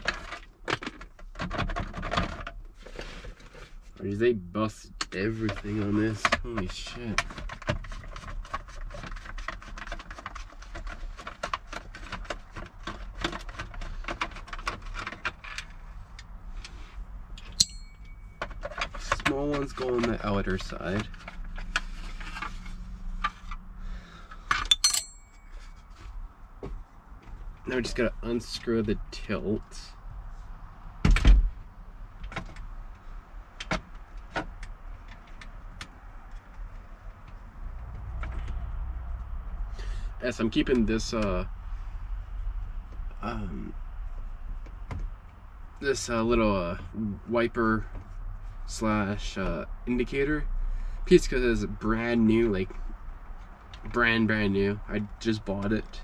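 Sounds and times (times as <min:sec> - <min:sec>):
low steady rumble: 0:02.6 - 0:56.0
sharp ringing click: 0:17.6 - 0:18.3, 0:24.7 - 0:25.5.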